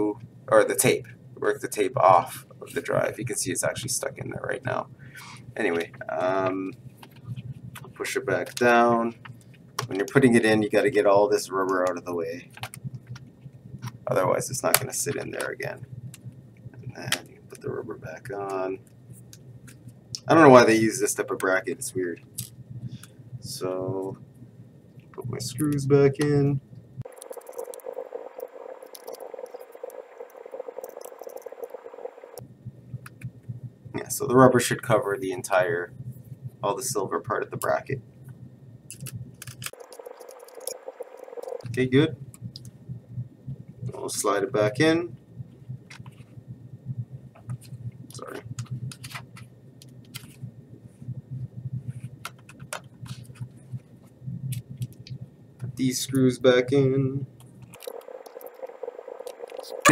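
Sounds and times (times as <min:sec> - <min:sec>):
low steady hum: 0:00.0 - 0:59.9
small clicks: 0:57.4 - 0:59.9.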